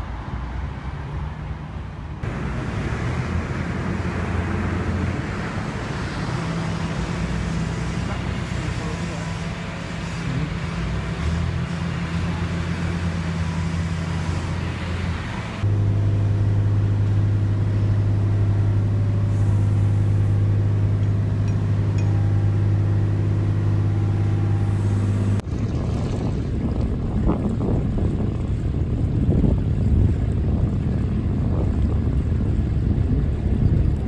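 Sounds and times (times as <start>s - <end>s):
boat engine running: 2.2s - 34.0s
wind buffeting microphone: 25.4s - 34.0s.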